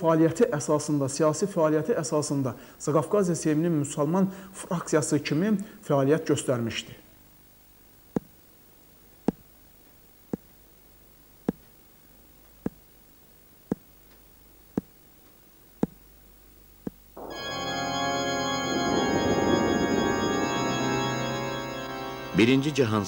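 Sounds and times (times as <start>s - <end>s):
pendulum clock ticking: 15.8s - 16.0s
music of long held chords: 17.2s - 23.0s.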